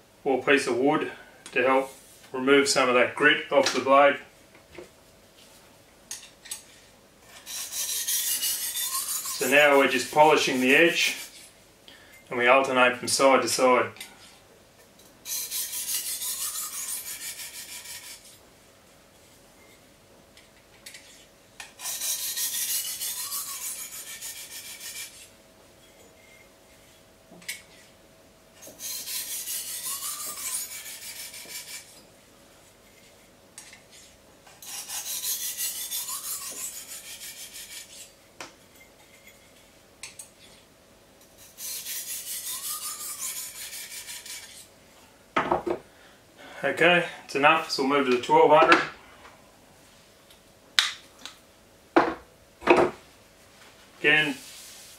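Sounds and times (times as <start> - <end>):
knife scraping on sharpening stone: 7.3 - 11.5, 15.2 - 18.4, 20.8 - 26.5, 28.6 - 32.0, 32.8 - 38.1, 38.7 - 40.6, 41.2 - 44.7.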